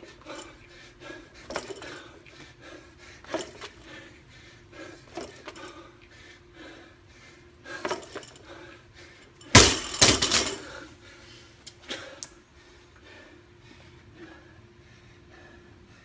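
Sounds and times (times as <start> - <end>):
barbell rattling: 1.4 - 2.1, 3.3 - 3.8, 7.7 - 8.6, 9.4 - 10.8
weight plates slamming on concrete: 9.5 - 10.7.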